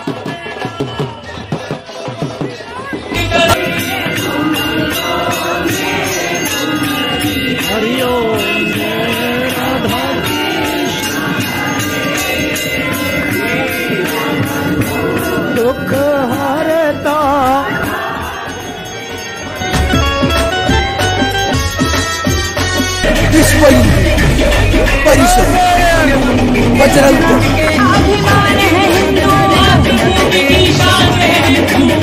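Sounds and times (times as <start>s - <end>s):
steady percussion beat: 0.0s - 32.0s
person singing ornamented melody: 3.1s - 19.5s.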